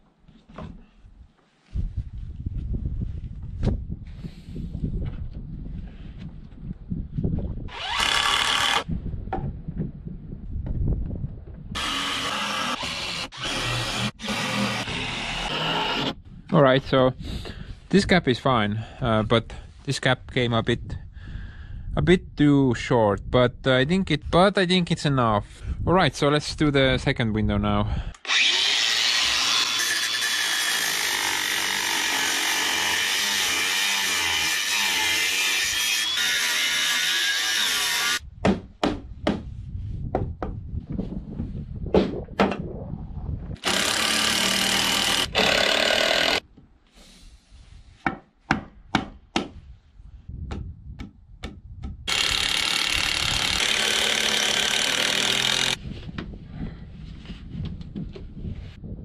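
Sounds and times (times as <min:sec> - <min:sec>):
power saw cutting wood: 0:07.7 - 0:08.9, 0:11.8 - 0:16.2, 0:28.2 - 0:38.2, 0:43.6 - 0:46.4, 0:52.1 - 0:55.8
knocks and taps on wood: 0:48.0 - 0:49.6, 0:50.5 - 0:52.0.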